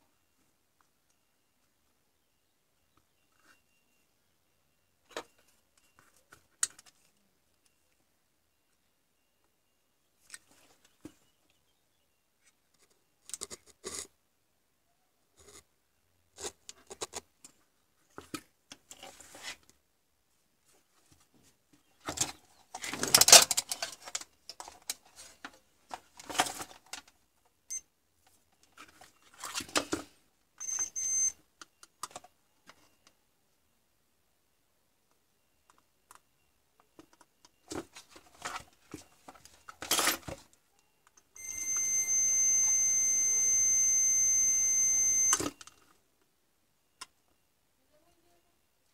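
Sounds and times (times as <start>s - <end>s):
high-pitched beep: 30.6s - 31.4s, 40.8s - 45.6s.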